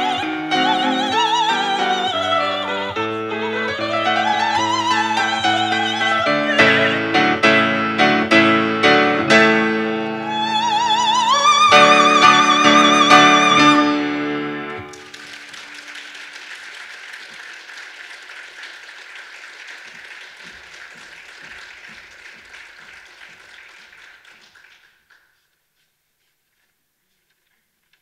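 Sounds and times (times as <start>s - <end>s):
person singing with piano: 0.0s - 14.9s
audience applauding: 3.9s - 7.6s, 10.3s - 14.1s, 14.8s - 25.4s.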